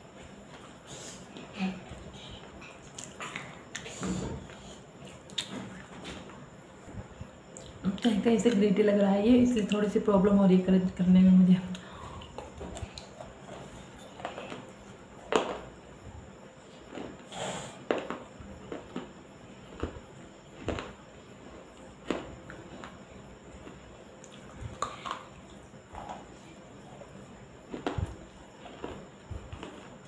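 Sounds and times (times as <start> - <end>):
fan humming: 0.0 - 30.0
chewing clay with crunches: 16.7 - 21.0, 21.7 - 30.0.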